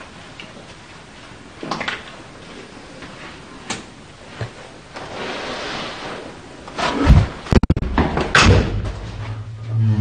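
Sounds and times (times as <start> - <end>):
rustling scrape: 5.0 - 7.1.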